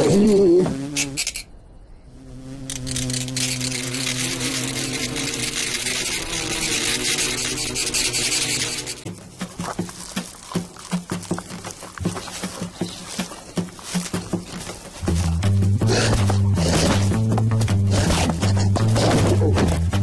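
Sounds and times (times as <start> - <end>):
cartoon grasshopper swarm buzzing: 0.0 - 1.4, 2.1 - 11.8.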